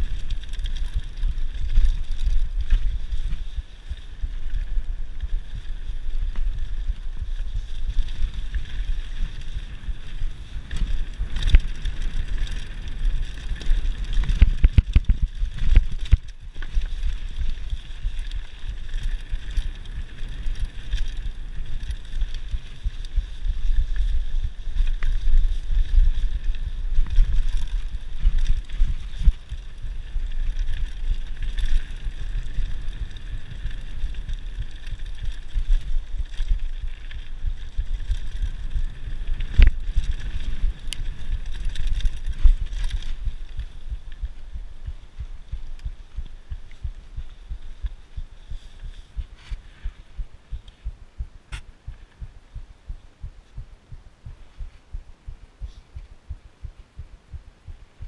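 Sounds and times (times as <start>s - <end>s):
tyres rolling over loose stones: 0.0s - 44.1s
bike rattling: 0.0s - 50.9s
wind rumble on microphone: 0.0s - 58.0s.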